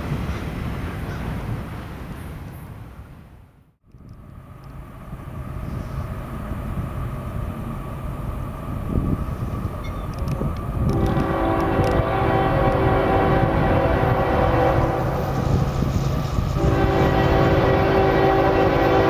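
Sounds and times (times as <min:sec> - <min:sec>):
train rumble: 0:00.0 - 0:19.0
train air horn: 0:10.9 - 0:19.0.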